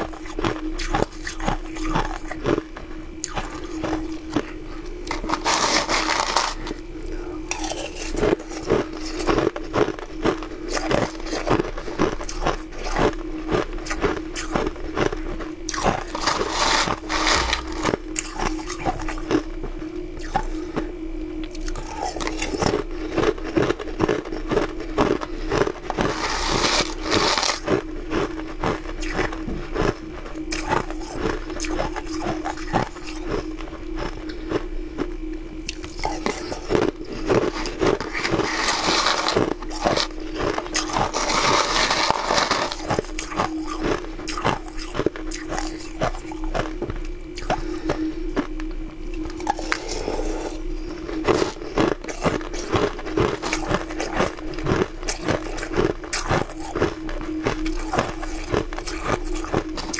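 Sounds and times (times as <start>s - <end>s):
crunching and chewing frozen food: 0.0s - 59.9s
steady low hum: 0.0s - 59.9s
spoon scraping plastic tub: 5.1s - 6.7s, 16.0s - 18.0s, 26.0s - 27.7s, 38.0s - 40.1s, 40.8s - 43.0s.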